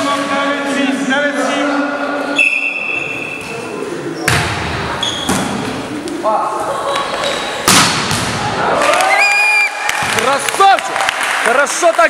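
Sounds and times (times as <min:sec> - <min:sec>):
referee's whistle: 0:02.4 - 0:03.4
people shouting in a hall: 0:08.4 - 0:10.1.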